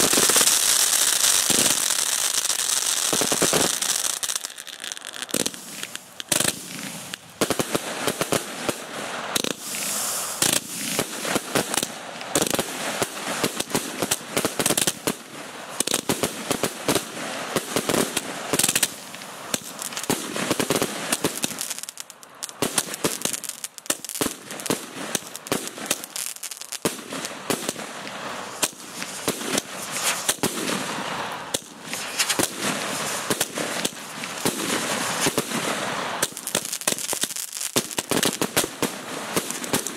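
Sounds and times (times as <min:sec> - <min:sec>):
fireworks bangs: 0:00.0 - 0:39.9
fireworks crackling: 0:00.0 - 0:39.9.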